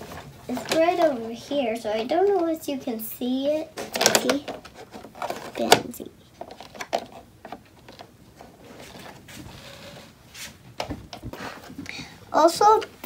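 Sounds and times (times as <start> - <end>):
plastic pieces clicking and tapping: 3.8 - 8.1.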